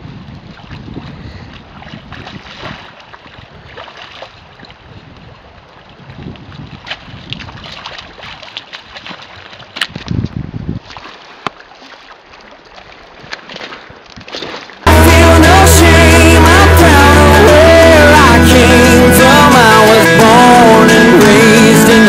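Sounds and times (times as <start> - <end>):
wind rumbling on microphone: 0.0 - 11.0
fish thrashing and splashing water: 0.4 - 4.9, 5.6 - 10.2, 10.8 - 14.8.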